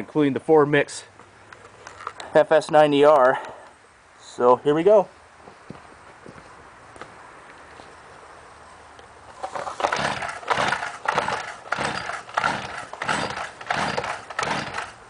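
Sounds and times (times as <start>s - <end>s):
engine cranking without catching: 9.3s - 15.0s
pull-start cord yanked: 9.4s - 14.9s.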